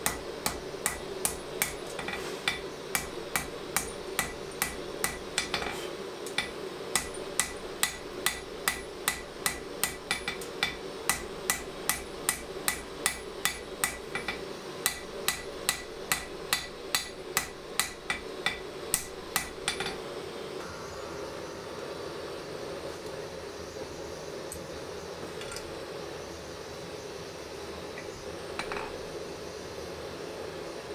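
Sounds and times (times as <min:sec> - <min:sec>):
hammer striking steel on anvil: 0:00.0 - 0:20.0
steady background noise: 0:00.0 - 0:30.9.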